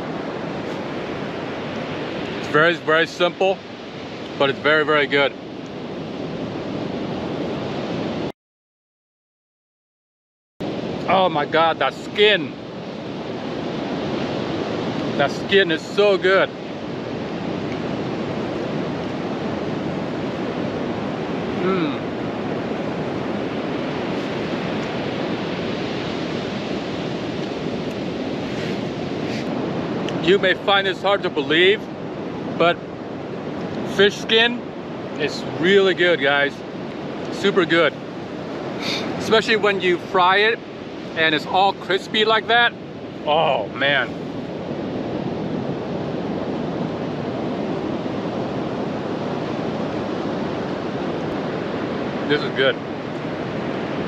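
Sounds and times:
ocean surf breaking: 0.0 - 8.3, 10.6 - 54.0.

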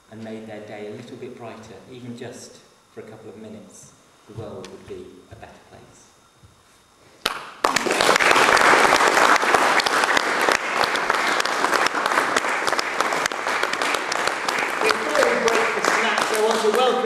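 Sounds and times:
audience clapping: 7.2 - 17.0.

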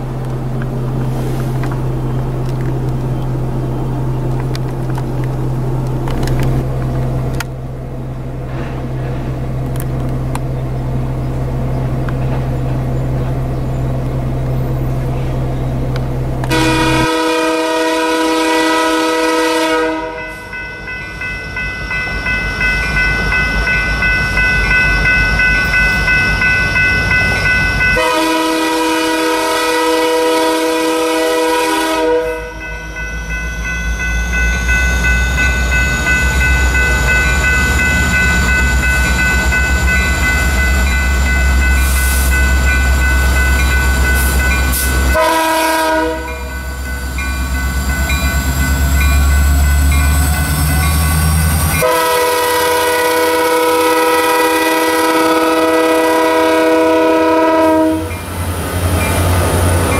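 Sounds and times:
train engine and wheels rumbling: 0.0 - 59.9
train air horn blasts: 16.5 - 20.5, 28.0 - 32.7, 44.2 - 46.5, 51.8 - 58.2.

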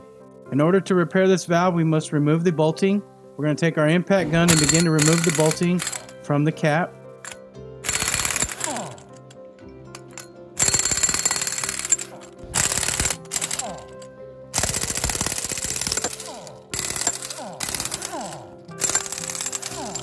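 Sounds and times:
impact gun hammering: 4.4 - 6.1, 7.9 - 9.0, 10.0 - 14.0, 14.6 - 20.0.

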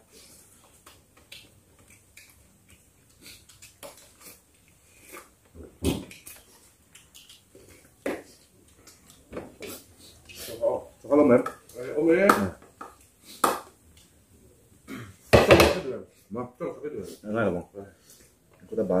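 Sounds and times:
chewing and lip smacking: 0.5 - 10.5.

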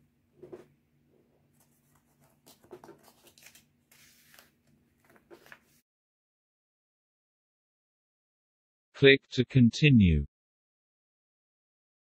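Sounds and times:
rustling of paper book: 1.5 - 5.8.

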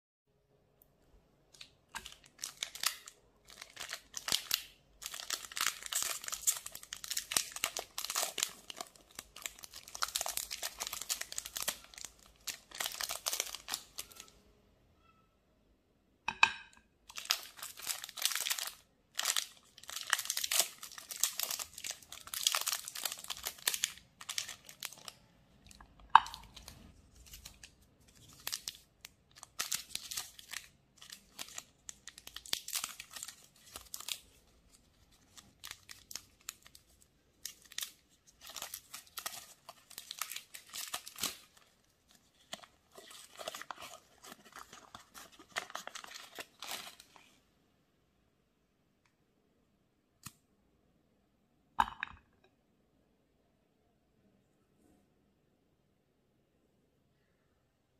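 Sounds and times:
wrapper crinkling and tearing: 1.5 - 14.3, 17.1 - 47.4.

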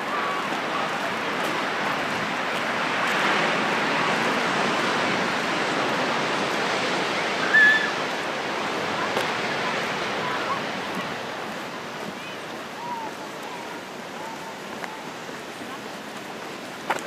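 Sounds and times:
ocean surf washing over rocks: 0.0 - 17.0.

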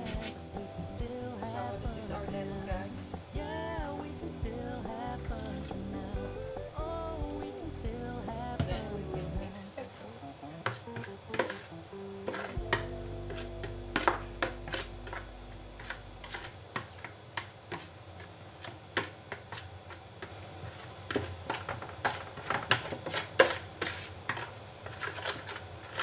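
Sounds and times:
marinade stirred in plastic bowl: 15.8 - 17.1, 17.7 - 26.0.

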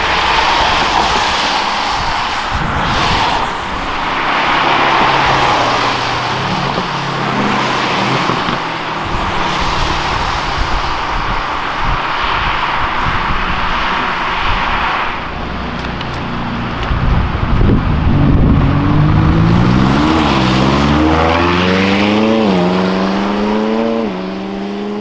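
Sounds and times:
tyres hissing on wet road: 0.0 - 16.8
sports car engines accelerating: 3.0 - 25.0.

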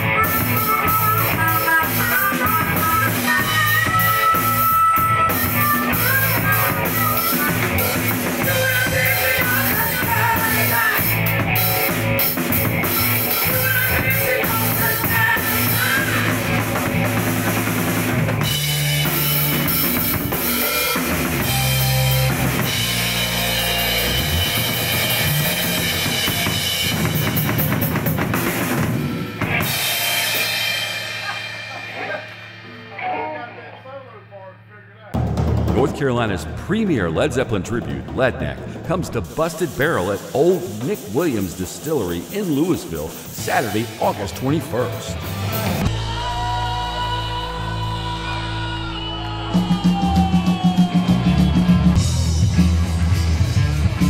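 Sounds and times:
harmonica wailing: 0.0 - 17.3
drum kit: 0.0 - 33.7, 35.1 - 54.0
electric guitar: 0.0 - 33.8, 40.1 - 54.0
bass guitar: 0.0 - 54.0.

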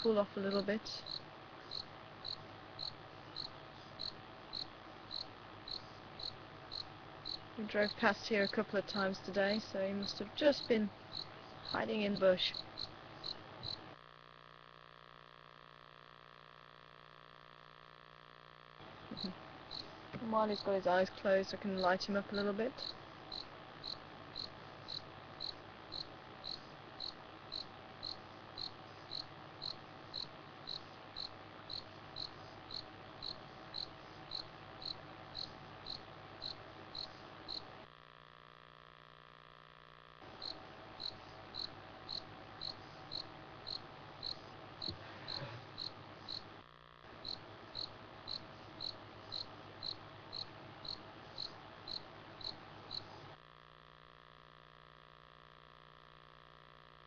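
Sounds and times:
low steady hum: 0.0 - 57.0
cricket chirping: 0.5 - 9.0, 10.0 - 13.9, 19.1 - 19.9, 22.8 - 37.8, 40.3 - 46.5, 47.2 - 53.2.

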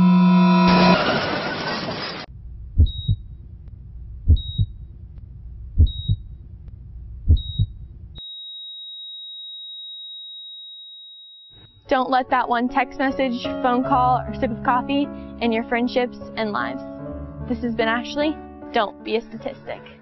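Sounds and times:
heartbeat double thumps: 2.3 - 8.2.

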